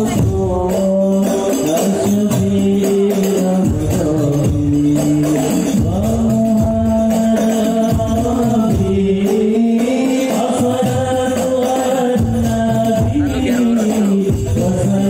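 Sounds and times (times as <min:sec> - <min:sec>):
group singing long held notes: 0:00.0 - 0:15.0
hand drums: 0:00.0 - 0:15.0
jingling tambourines: 0:00.0 - 0:15.0.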